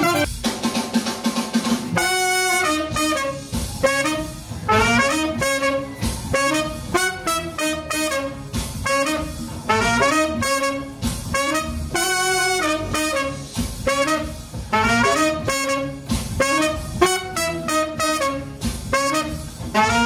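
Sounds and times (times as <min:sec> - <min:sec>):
saxophone and trumpet jazz: 0:00.0 - 0:00.7, 0:01.9 - 0:20.0.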